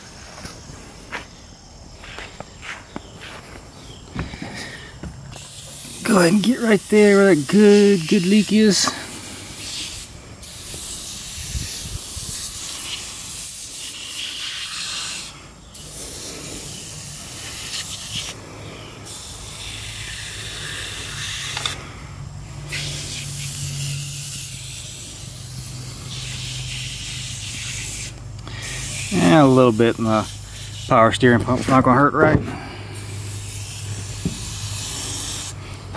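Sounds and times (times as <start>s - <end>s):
aerosol can spraying: 5.4s - 18.4s, 19.0s - 21.8s, 22.7s - 31.8s, 33.0s - 35.6s.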